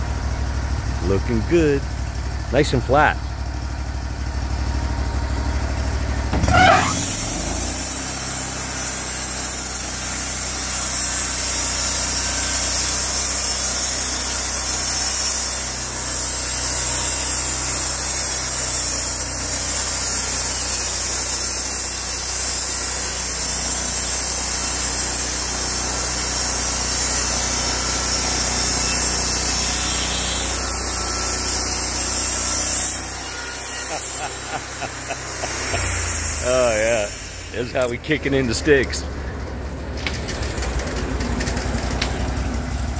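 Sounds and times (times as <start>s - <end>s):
sawmill engine running: 0.0s - 42.9s
band blade sawing log hiss: 6.5s - 38.8s.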